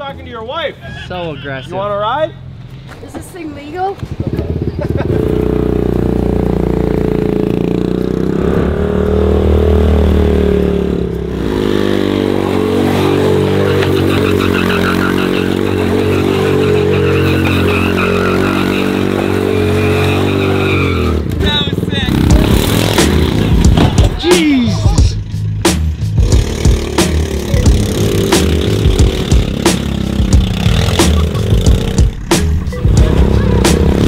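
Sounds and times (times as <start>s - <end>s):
small scooter engine running: 13.1s - 21.0s.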